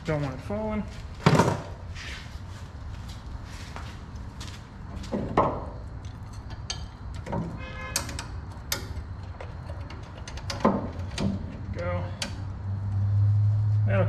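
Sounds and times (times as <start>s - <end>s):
light metal clinks and knocks: 5.0s - 12.5s.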